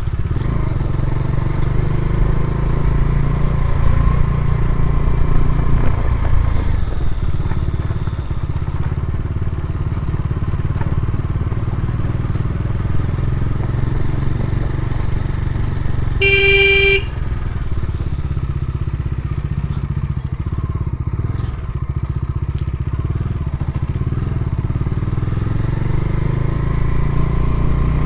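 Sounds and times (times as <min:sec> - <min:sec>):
motorcycle engine running: 0:00.0 - 0:28.0
vehicle horn: 0:16.2 - 0:17.4.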